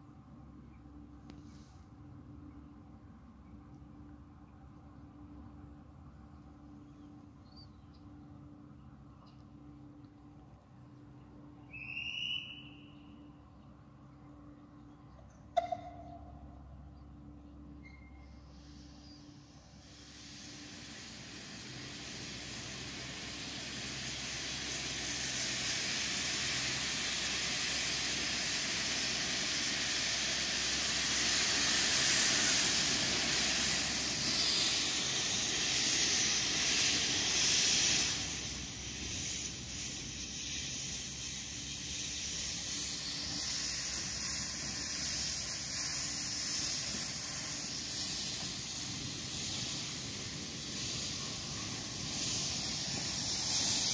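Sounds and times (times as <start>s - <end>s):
steam locomotive hissing: 0.0s - 3.2s, 11.3s - 13.3s, 17.9s - 53.9s.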